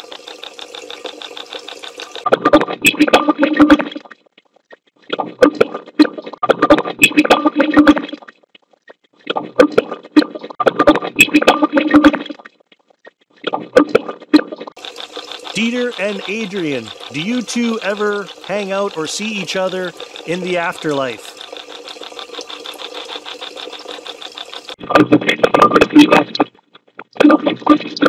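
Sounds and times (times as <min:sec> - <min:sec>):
garbled voice-like fragments: 0:15.6 - 0:21.4.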